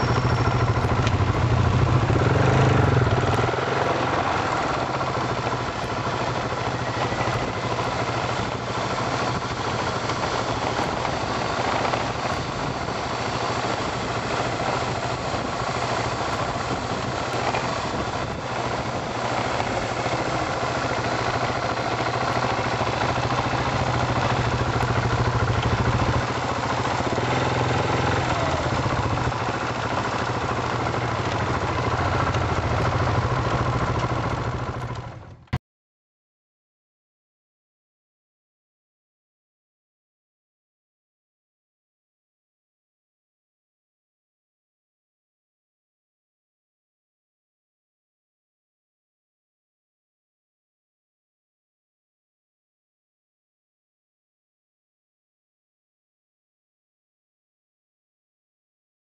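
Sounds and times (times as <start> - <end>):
motorcycle engine running: 0.0 - 35.6.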